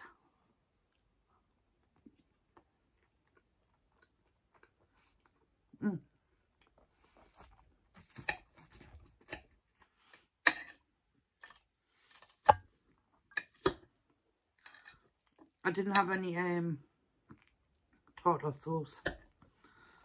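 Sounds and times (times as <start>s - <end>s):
soft chewing: 0.1s - 10.3s, 11.4s - 15.6s, 17.2s - 18.2s.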